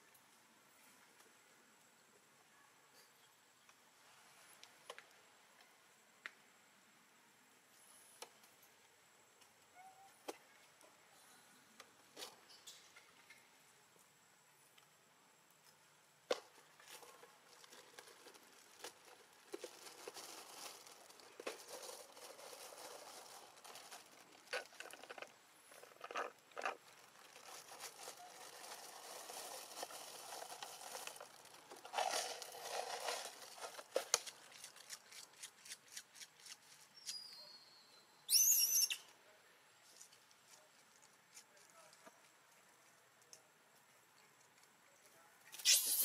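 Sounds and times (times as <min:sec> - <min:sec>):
monkey squealing: 0:38.3 - 0:39.0, 0:45.6 - 0:46.0
monkeys rustling on stone: 0:45.6 - 0:46.0.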